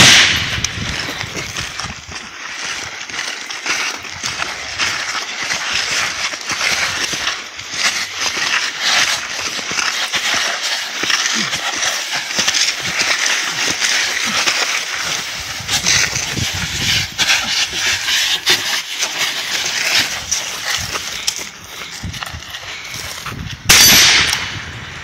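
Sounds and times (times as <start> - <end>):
clothing scraping over dry ground: 0.3 - 24.0
heavy breathing: 19.4 - 23.4.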